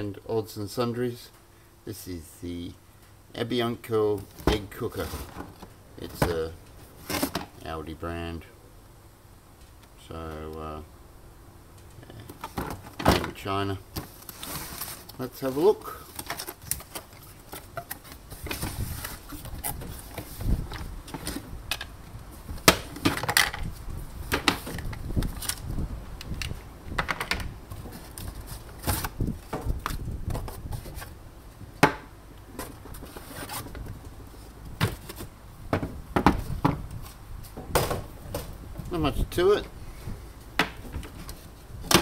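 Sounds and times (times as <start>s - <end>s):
cardboard flaps scraping: 14.0s - 21.6s, 32.6s - 35.4s.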